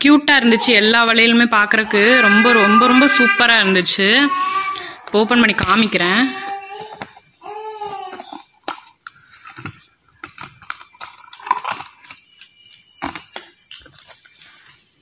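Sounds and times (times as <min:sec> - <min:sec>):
plastic lid clicking and creaking: 0:04.8 - 0:07.2, 0:07.8 - 0:14.3.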